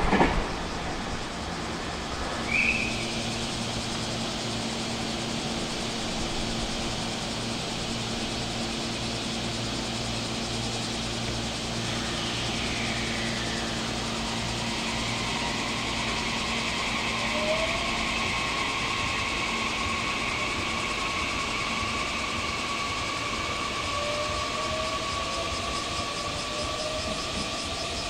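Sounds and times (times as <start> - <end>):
electric train rumbling: 0.0 - 28.0
train motor whine rising: 0.0 - 28.0.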